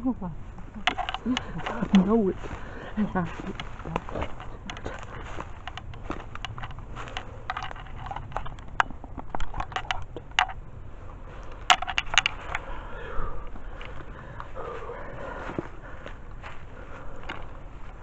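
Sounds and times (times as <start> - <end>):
footsteps crunching through dry leaves: 1.4 - 7.5, 13.6 - 18.0.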